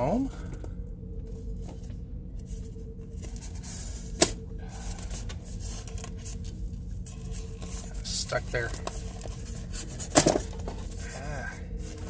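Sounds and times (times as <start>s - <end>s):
styrofoam scraping and rubbing: 7.1s - 12.0s.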